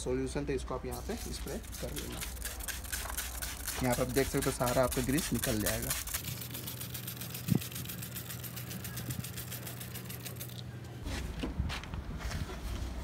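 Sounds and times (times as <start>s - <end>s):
low mechanical hum: 0.0s - 13.0s
fast even ticking: 1.0s - 10.6s.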